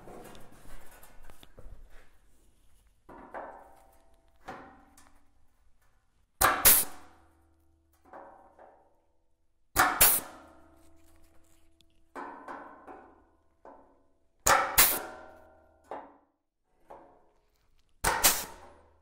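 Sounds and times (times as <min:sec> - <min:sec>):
punch tool punching steel: 0:06.4 - 0:07.2, 0:09.8 - 0:10.6, 0:14.4 - 0:15.5, 0:18.0 - 0:18.9.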